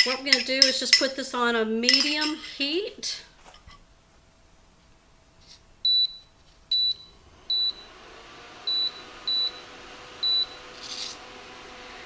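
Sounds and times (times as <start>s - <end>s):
cooling fan whir: 6.7s - 12.0s
control panel beeps: 8.7s - 9.6s, 10.2s - 10.6s.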